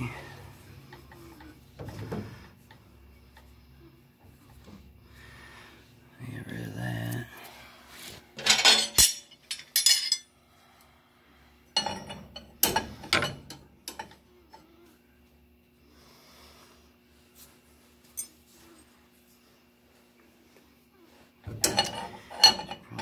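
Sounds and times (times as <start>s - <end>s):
steel wrench clanking on metal: 8.4s - 10.2s, 21.6s - 23.0s.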